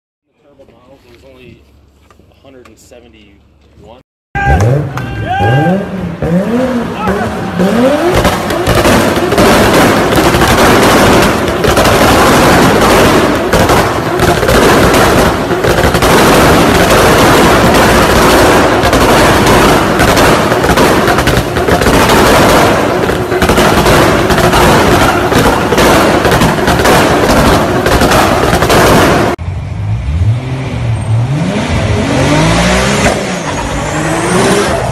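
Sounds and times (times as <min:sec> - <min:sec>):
exhaust bangs and crackles: 0:04.4 - 0:34.9
car engine at high revs: 0:04.5 - 0:34.9.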